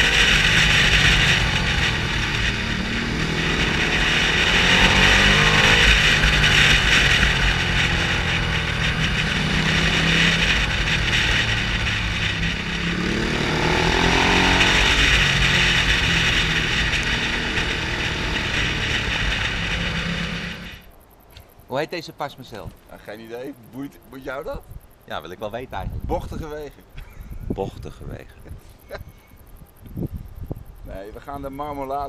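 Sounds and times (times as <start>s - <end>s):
heavy wind noise: 0.0s - 21.0s, 23.7s - 32.0s
motorcycle engine running: 0.0s - 21.6s.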